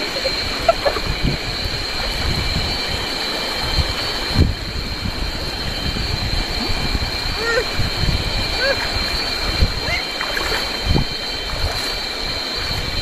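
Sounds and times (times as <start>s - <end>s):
cicadas droning: 0.0s - 13.0s
wind buffeting microphone: 0.0s - 13.0s
river rushing over stones: 6.5s - 12.7s.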